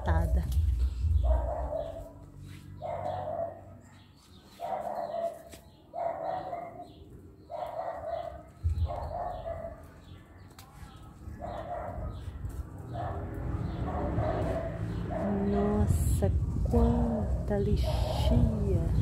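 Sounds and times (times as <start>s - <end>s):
animal calling: 17.8s - 18.6s.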